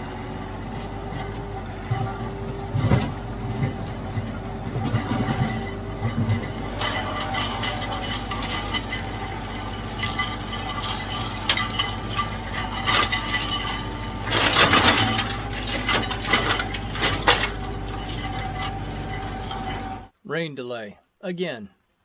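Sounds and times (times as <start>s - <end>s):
diesel tractor engine running: 0.0s - 20.1s
sharp clinks and rattles: 3.6s - 20.1s.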